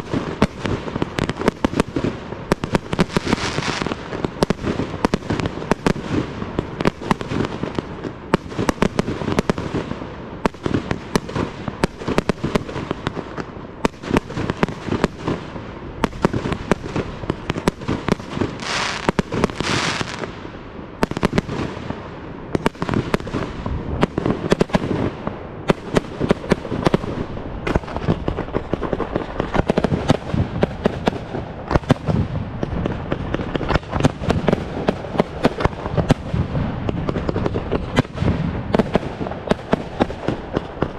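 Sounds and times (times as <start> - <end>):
fireworks bursting and crackling: 0.0 - 40.9
loud firework hiss: 2.6 - 6.4, 18.4 - 20.5.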